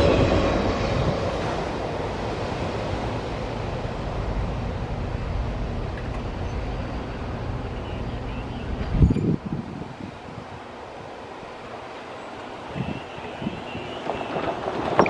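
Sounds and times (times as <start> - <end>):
freight train rumbling: 0.0 - 15.0
wind thump on microphone: 8.8 - 10.4.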